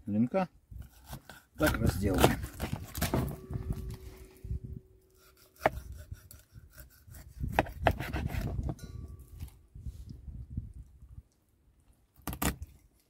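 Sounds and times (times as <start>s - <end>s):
knife sawing through fish: 0.8s - 3.0s, 5.2s - 8.6s.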